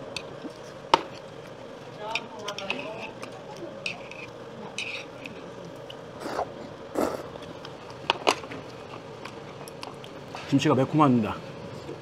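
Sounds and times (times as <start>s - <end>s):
faint steady hum: 0.0s - 12.0s
eating noises: 5.7s - 8.0s.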